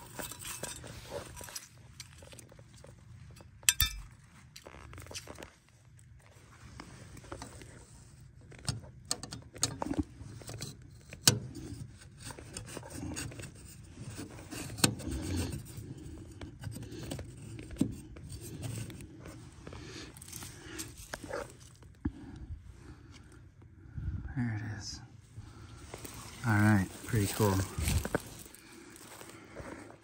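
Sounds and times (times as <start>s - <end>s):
hands and clothing rustling: 18.0s - 22.0s, 25.5s - 30.0s.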